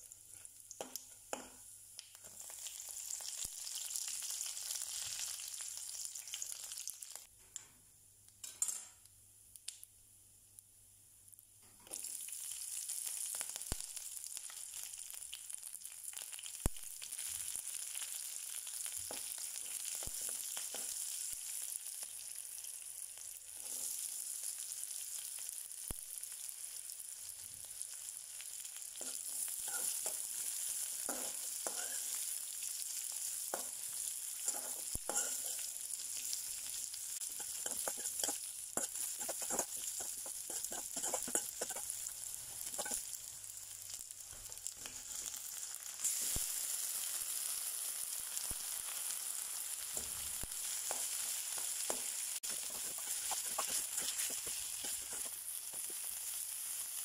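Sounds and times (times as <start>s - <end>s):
oil sizzling in a pan: 0.0s - 7.3s, 11.2s - 57.0s
metal spoon scraping a pan: 29.0s - 32.2s, 34.4s - 35.7s, 37.2s - 43.1s, 44.3s - 45.4s, 50.7s - 56.0s.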